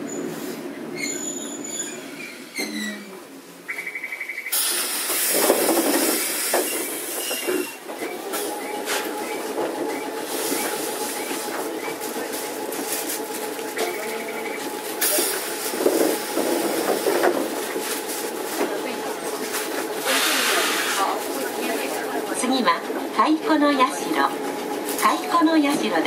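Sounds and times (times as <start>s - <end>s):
tram running with steady hum: 0.0s - 26.0s
loud air hiss: 4.5s - 7.2s, 20.0s - 21.2s.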